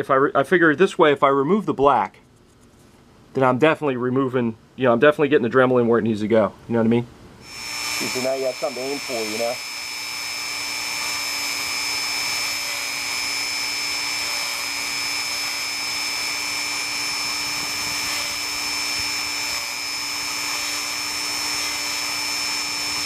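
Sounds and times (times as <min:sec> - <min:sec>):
rotary tool wire brush whine: 0:07.4 - 0:23.0.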